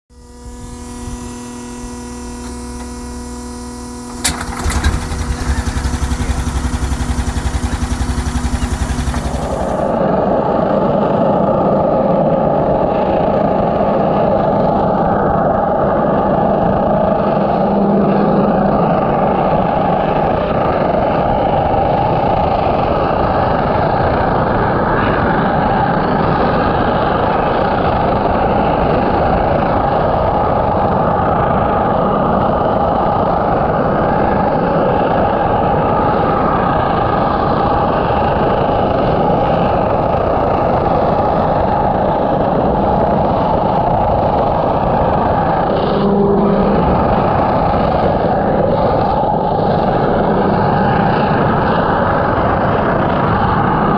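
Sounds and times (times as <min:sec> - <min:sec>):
pressure washer jet spraying underwater: 0:00.3 - 0:09.9.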